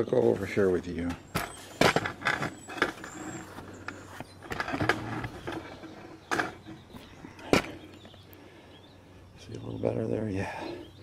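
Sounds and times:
camera bumping and knocking: 1.1s - 8.2s.

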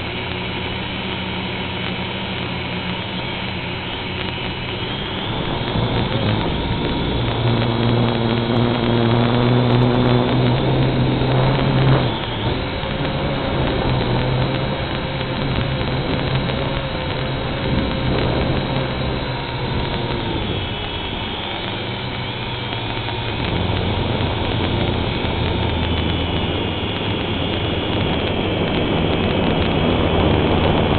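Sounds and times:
drone motors whirring: 0.0s - 30.9s.

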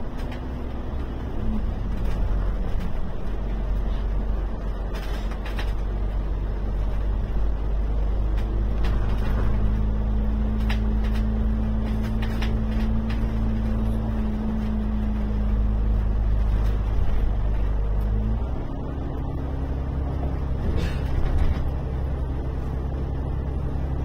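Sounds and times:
bus engine and road rumble: 0.0s - 24.0s
bodywork rattles: 6.8s - 18.0s.

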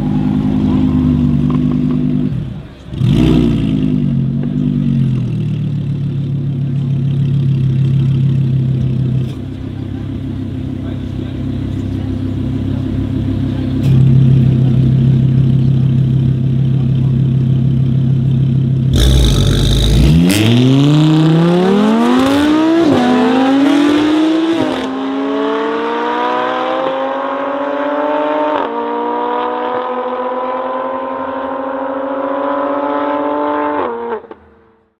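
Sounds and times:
cars accelerating hard: 0.0s - 5.2s, 18.9s - 34.8s
car engines idling: 0.0s - 20.4s.

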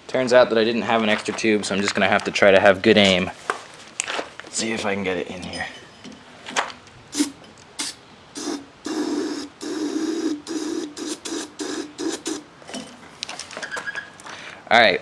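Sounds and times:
aerosol can spraying: 7.1s - 12.4s.

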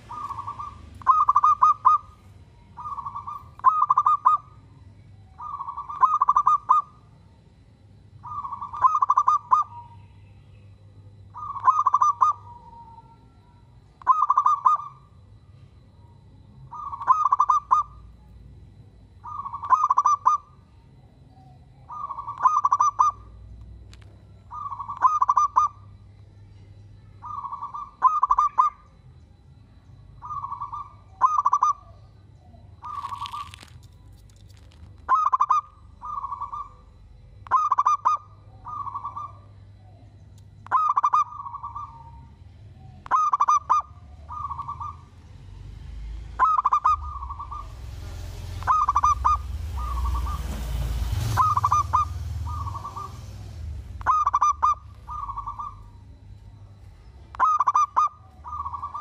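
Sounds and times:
dove cooing: 0.0s - 4.7s, 5.4s - 7.1s, 8.2s - 10.0s, 11.3s - 13.3s, 14.0s - 15.1s, 16.7s - 18.2s, 19.2s - 20.6s, 21.8s - 23.4s, 24.5s - 25.9s, 27.2s - 28.8s, 30.2s - 32.0s, 32.8s - 33.8s, 34.4s - 40.0s, 40.7s - 45.2s, 46.4s - 50.6s, 51.2s - 59.0s
background hiss: 47.4s - 54.1s.

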